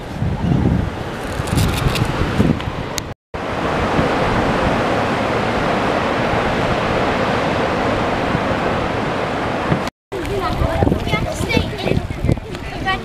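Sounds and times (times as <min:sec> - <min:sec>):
ocean surf on beach: 0:00.0 - 0:13.0
wind on microphone: 0:00.0 - 0:13.0.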